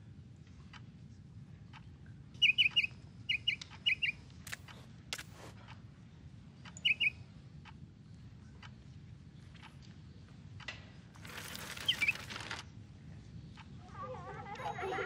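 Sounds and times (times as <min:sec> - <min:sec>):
canary chirping: 0:02.4 - 0:04.2, 0:06.8 - 0:07.2
sharp clicks: 0:02.4 - 0:05.8.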